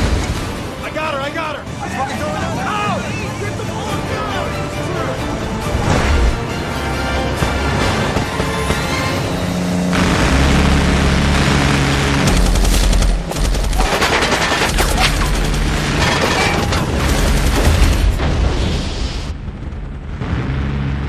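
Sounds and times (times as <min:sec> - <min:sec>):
film music: 0:00.0 - 0:21.0
low steady drone: 0:04.2 - 0:13.2.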